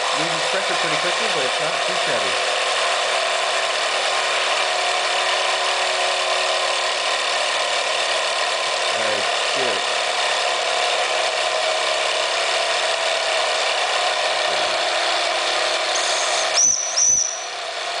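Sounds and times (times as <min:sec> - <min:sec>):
model steam engine hissing: 0:00.0 - 0:02.4, 0:15.4 - 0:17.9
short high whistle tones: 0:16.0 - 0:17.6.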